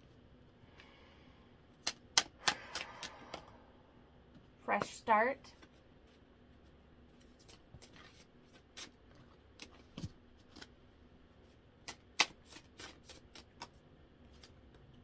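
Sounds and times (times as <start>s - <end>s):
cards being shuffled: 1.8s - 3.4s, 7.2s - 10.8s, 11.8s - 14.9s.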